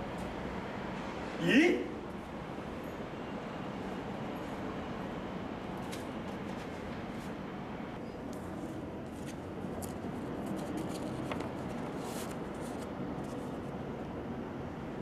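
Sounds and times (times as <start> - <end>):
paper rustling: 9.0 - 13.7.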